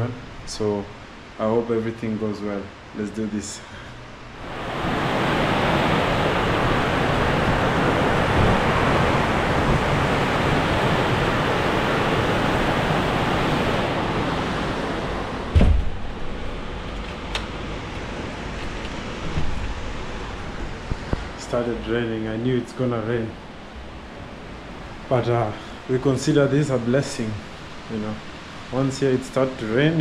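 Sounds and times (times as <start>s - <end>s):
heavy rain: 3.7s - 30.0s
thump: 15.5s - 16.0s.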